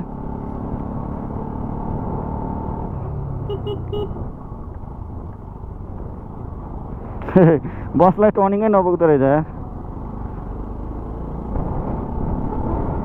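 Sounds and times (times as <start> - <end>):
wind and road noise: 0.0 - 13.0
horn tooting: 3.4 - 4.3.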